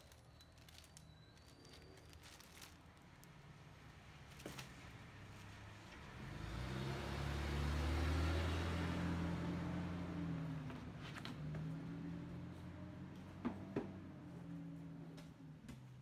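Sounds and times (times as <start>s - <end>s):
vehicle passing by: 5.0s - 14.9s.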